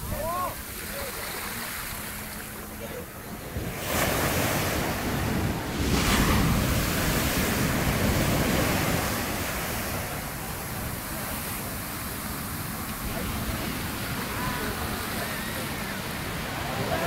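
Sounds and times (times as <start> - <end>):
sea surf breaking: 0.0 - 17.0
wind buffeting microphone: 1.9 - 17.0.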